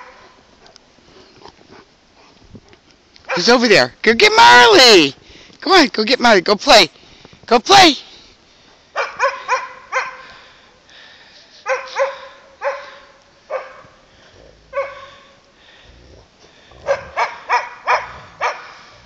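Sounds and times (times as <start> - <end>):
dog barking: 9.0 - 10.3, 11.6 - 14.0, 14.7 - 15.3, 16.8 - 18.8.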